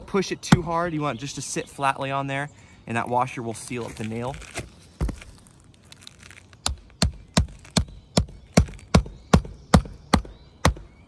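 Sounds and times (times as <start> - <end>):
hammer striking nail: 6.7 - 10.8.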